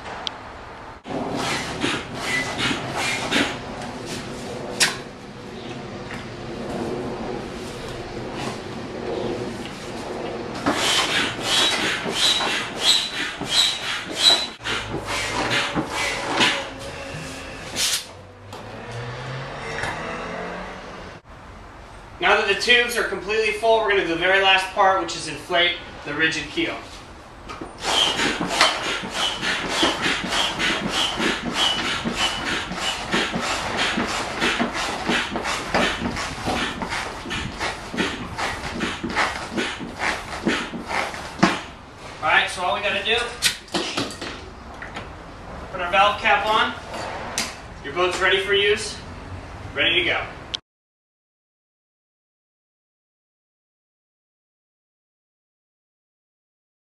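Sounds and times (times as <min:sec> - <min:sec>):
foot pump hissing strokes: 0:01.3 - 0:04.3, 0:10.6 - 0:18.1, 0:27.8 - 0:41.7.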